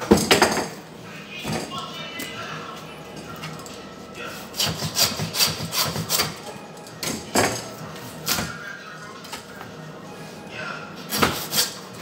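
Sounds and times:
bone saw rasping: 4.6 - 6.3.

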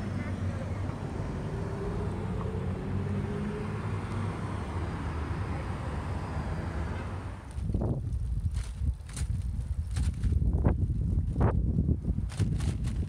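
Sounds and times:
faint passing engine: 0.0 - 7.6
low rumble of traffic: 0.0 - 13.0.

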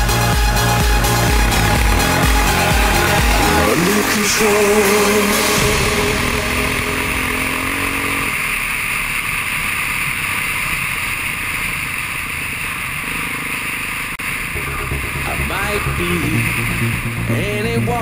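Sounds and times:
motorbike engine running: 0.0 - 12.4.

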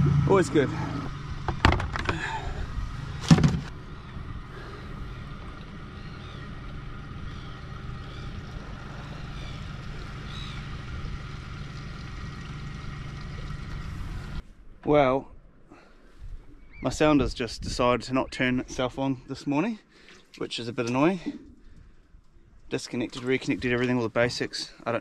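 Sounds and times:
outboard motor idling: 0.0 - 14.4.

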